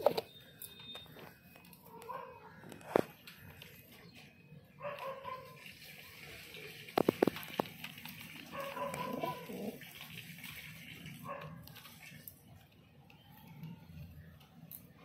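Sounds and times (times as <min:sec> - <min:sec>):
pigeons cooing: 0:08.2 - 0:10.0.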